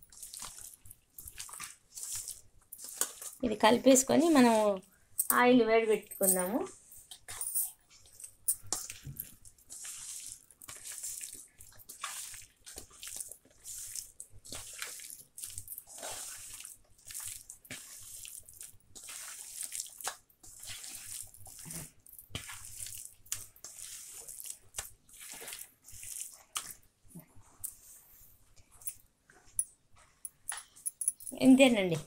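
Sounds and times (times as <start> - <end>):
hand squelching wet chicken: 0.1 - 3.4, 9.7 - 26.8.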